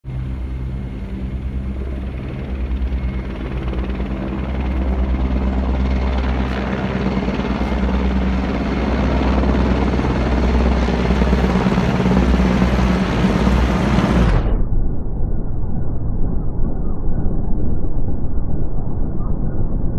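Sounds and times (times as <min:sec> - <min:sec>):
helicopter rotors beating: 0:00.1 - 0:14.6.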